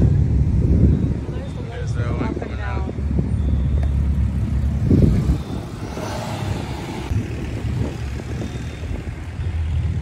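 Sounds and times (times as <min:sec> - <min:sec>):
cars driving slowly past: 0:00.0 - 0:10.0.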